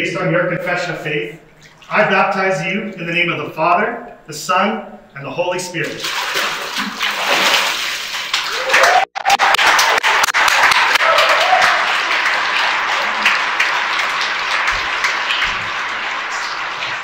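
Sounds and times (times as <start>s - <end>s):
crowd clapping: 8.2s - 17.0s.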